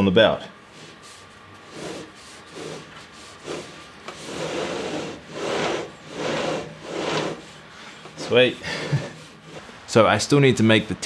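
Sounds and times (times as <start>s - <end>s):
timing belt grinding over pulleys: 1.6s - 7.6s.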